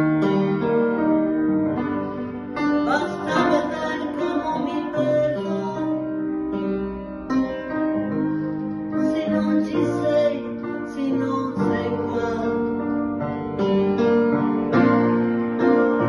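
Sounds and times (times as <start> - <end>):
woman singing: 2.8 - 6.2, 9.0 - 12.8.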